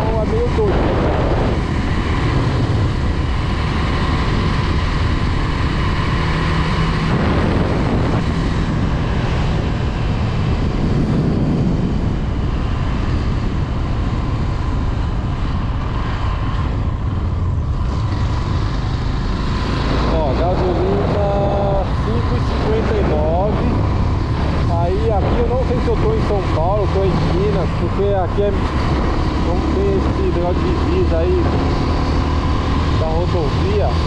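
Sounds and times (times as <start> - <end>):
motorcycle engine running: 0.0 - 34.0
wind noise on microphone: 0.0 - 34.0.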